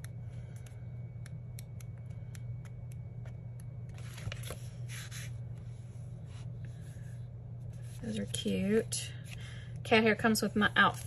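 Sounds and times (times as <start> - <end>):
low hum: 0.0 - 11.0
page turning rustle: 3.9 - 5.2.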